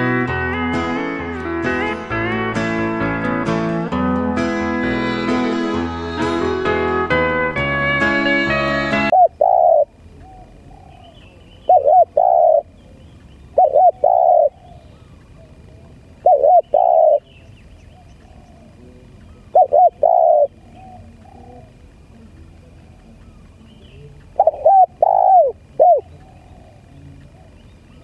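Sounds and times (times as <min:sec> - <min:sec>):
music: 0:00.0 - 0:09.1
dove cooing: 0:09.1 - 0:28.0.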